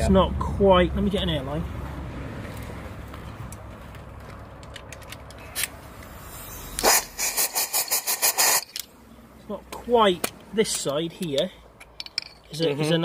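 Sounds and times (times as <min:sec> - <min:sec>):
compressed air blasts: 0:06.2 - 0:08.9.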